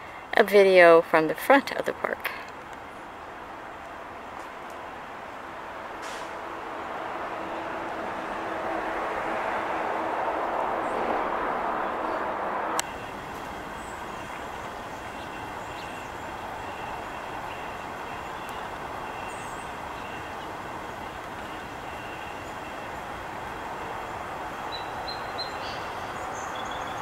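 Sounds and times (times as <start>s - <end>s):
outdoor traffic noise: 0.0s - 27.0s
vehicle engine hum: 0.0s - 27.0s.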